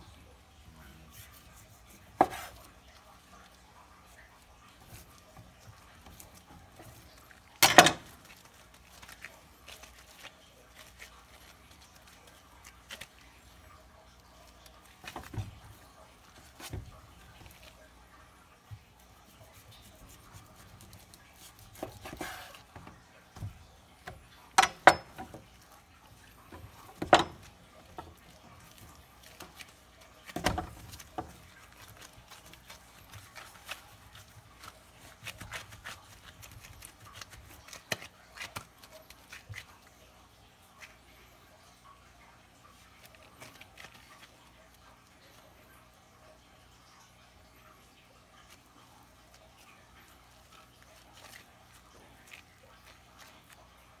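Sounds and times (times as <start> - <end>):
knife tapping wooden cutting board: 2.2 - 2.5.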